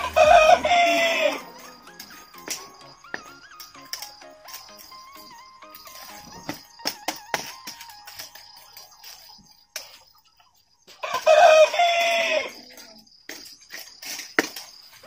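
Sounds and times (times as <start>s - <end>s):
rooster crowing: 0.0s - 1.7s, 11.0s - 12.6s
faint background music: 0.0s - 13.2s.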